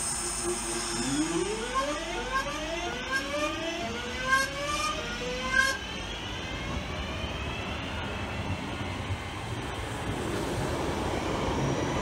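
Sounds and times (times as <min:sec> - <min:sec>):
train traction motor whine: 0:00.0 - 0:12.0.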